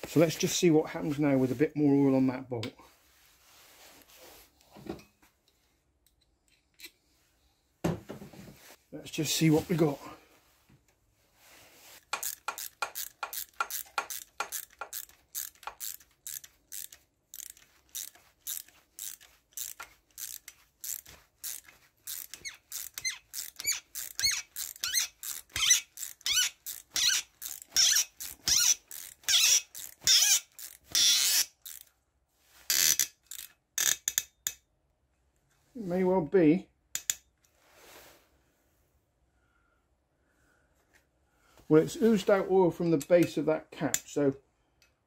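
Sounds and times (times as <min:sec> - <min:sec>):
hand ratchet clicking: 0:12.0 - 0:31.9, 0:32.7 - 0:34.6, 0:37.0 - 0:37.2.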